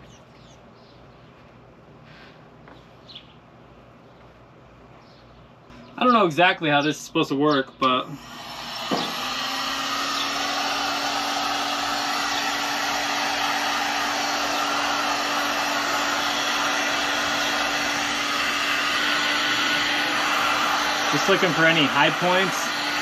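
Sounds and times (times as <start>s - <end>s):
heat gun fan blowing: 7.8s - 23.0s.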